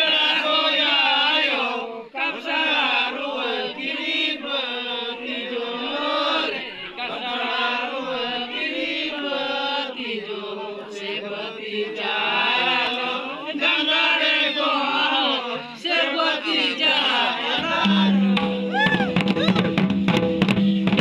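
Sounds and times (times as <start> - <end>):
men chanting in unison: 0.0 - 18.7
hand drums and kettle drums: 17.6 - 21.0.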